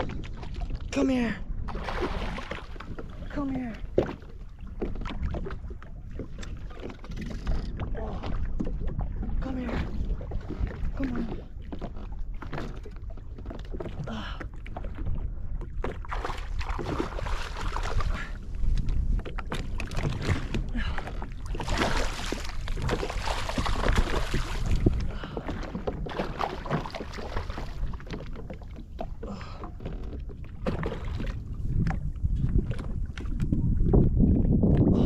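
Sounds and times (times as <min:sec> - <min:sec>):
water sloshing and lapping: 0:00.0 - 0:35.0
wind rumbling on microphone: 0:00.0 - 0:35.0
rush of splashing water: 0:01.6 - 0:04.2, 0:15.9 - 0:18.5, 0:19.4 - 0:28.5.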